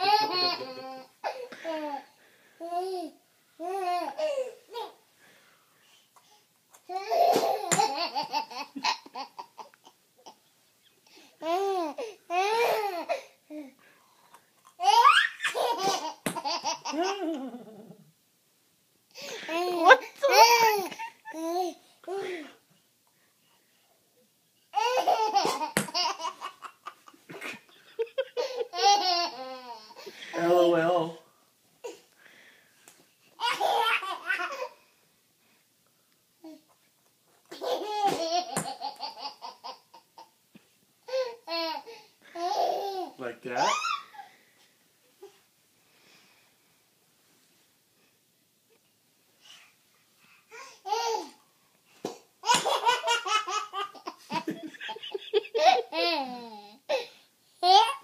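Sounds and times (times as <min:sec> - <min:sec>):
baby laughing hysterically: 0:00.0 - 0:01.4, 0:14.8 - 0:17.4, 0:24.8 - 0:30.0, 0:33.4 - 0:34.8, 0:52.4 - 0:56.4
man laughing: 0:27.4 - 0:28.7, 0:54.3 - 0:55.9.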